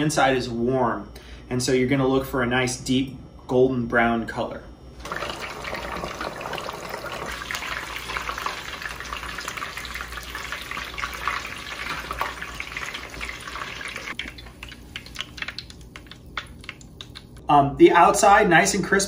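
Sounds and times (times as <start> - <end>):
chicken deep-frying in oil: 5.0 - 17.4.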